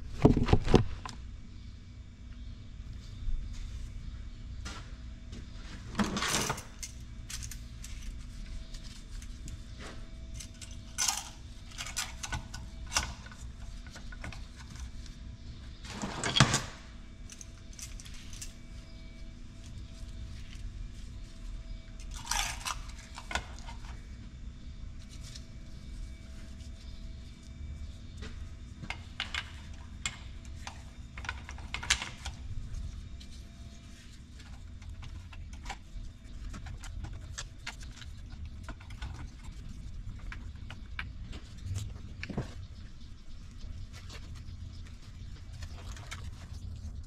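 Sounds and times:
low steady hum: 0.0s - 47.0s
small metal parts clicking: 6.4s - 8.2s, 10.3s - 13.1s.

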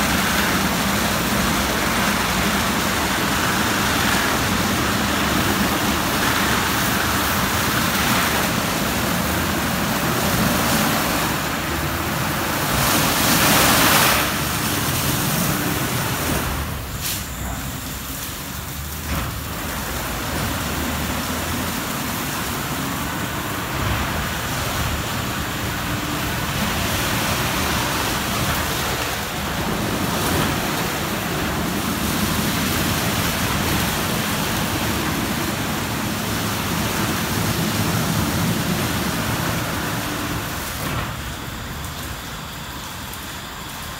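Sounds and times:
car wash brushes and water: 0.0s - 43.9s.

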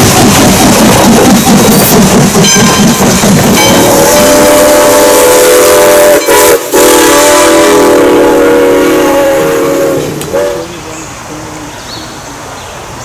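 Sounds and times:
steam locomotive whistle blasts: 3.6s - 10.7s.

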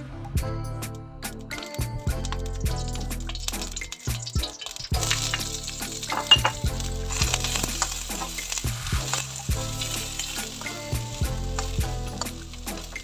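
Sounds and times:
onions sizzling in oil: 1.6s - 13.0s.

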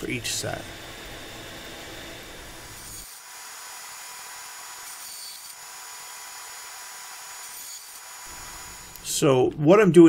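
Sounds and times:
bandsaw cutting plywood: 2.6s - 9.1s.

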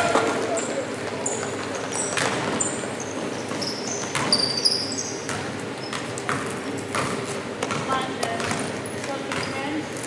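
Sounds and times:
crowd murmur: 0.0s - 1.8s
sneaker squeaks: 0.0s - 9.8s
basketball bouncing: 3.5s - 4.5s, 5.2s - 9.7s.

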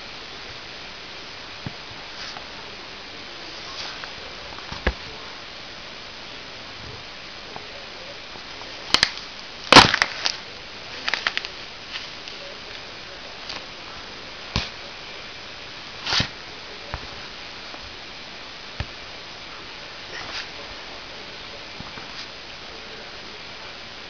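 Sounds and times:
apple crushed under boot: 8.9s - 10.4s.

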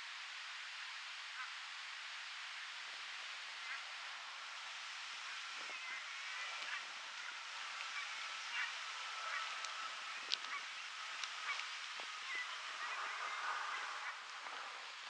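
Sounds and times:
steady soft hiss: 0.0s - 15.0s
distant bird calls: 5.2s - 15.0s.

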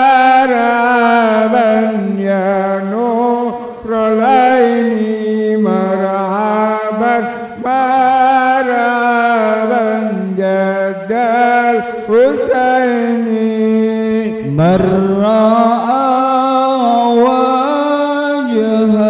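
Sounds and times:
man chanting through microphone: 0.0s - 19.0s
man breathing: 3.5s - 3.9s.

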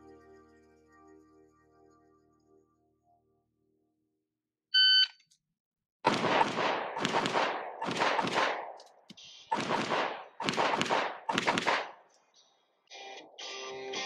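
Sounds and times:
shot timer beep: 4.8s - 5.2s
handgun shots: 6.1s - 12.1s.

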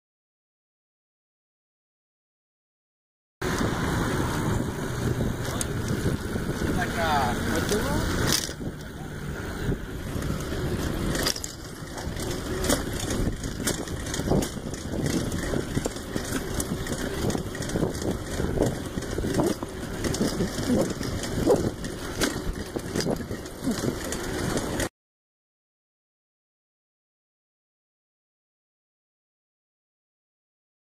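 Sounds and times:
bicycle rumbling on concrete: 3.4s - 24.9s
bike rattles and clicks: 3.4s - 24.9s.

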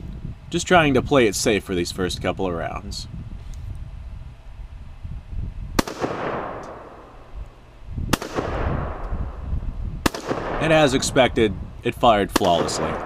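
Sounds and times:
wind rumble on microphone: 0.0s - 13.0s
rifle shots with echo: 5.8s - 7.2s, 8.1s - 11.4s, 12.3s - 13.0s.

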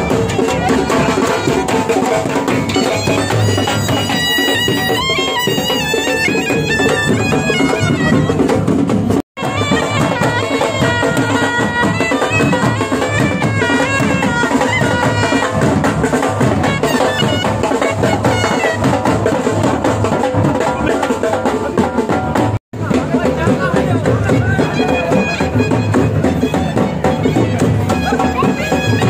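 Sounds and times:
snare and bass drums beating: 0.0s - 29.0s
bagpipe melody: 2.6s - 8.5s, 9.4s - 15.8s.

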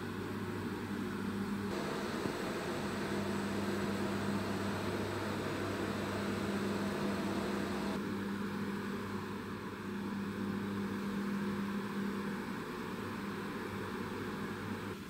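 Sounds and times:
low hum: 1.7s - 8.0s
steady hiss: 1.7s - 8.0s.

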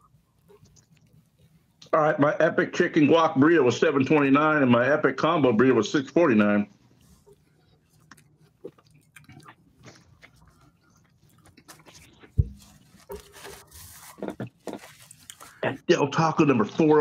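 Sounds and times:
burrito being bitten and chewed: 0.0s - 1.9s, 6.8s - 15.8s.

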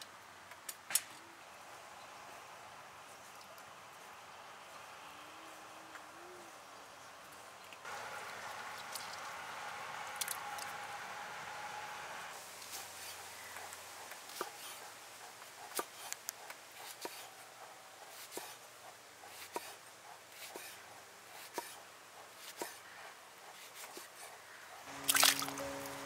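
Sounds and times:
music: 24.9s - 26.0s.

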